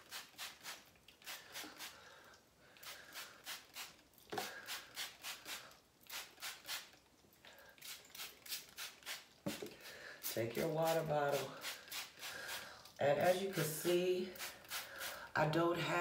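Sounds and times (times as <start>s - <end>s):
spray bottle squirting mist: 0.0s - 2.0s, 2.8s - 7.0s, 7.8s - 12.6s, 14.4s - 15.2s.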